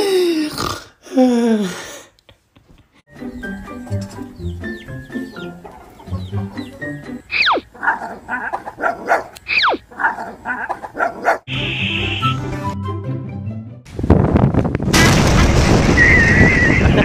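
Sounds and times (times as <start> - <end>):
playful background music: 3.1 - 7.6, 11.6 - 13.9.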